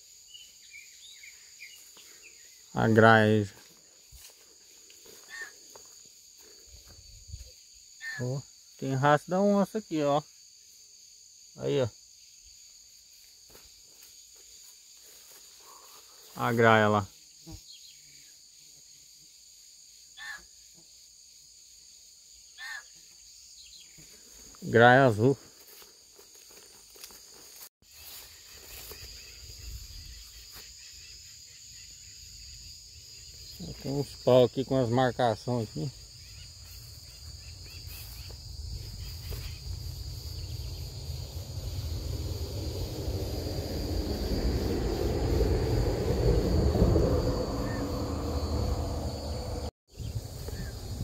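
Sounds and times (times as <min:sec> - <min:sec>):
insects chirring: 0:00.0 - 0:51.0
low rumble: 0:39.7 - 0:49.7.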